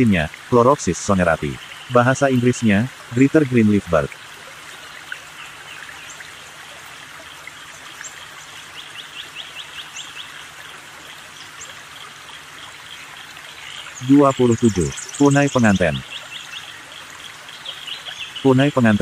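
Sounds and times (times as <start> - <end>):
steady hiss: 0.0 - 7.2, 8.0 - 19.0
high bird calls: 7.3 - 19.0.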